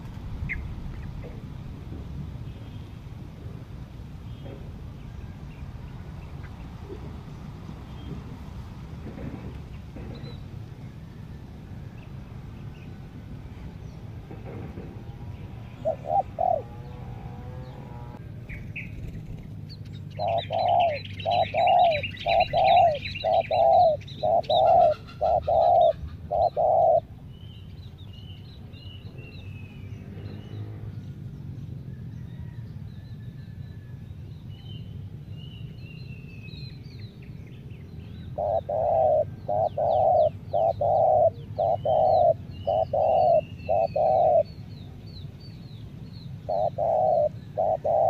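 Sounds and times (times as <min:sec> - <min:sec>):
small birds chirping faintly: 0:00.0 - 0:48.0
dove cooing: 0:15.6 - 0:18.2, 0:20.2 - 0:27.2, 0:38.3 - 0:44.7, 0:46.4 - 0:48.0.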